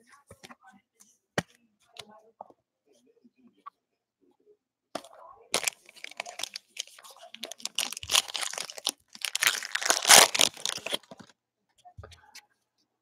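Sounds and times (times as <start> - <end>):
foil wrapper crinkling and tearing: 5.6 - 11.3.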